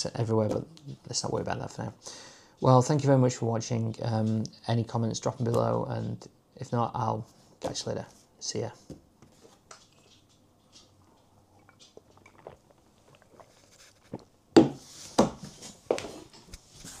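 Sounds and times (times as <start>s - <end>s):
man gulping drink: 10.9s - 14.3s.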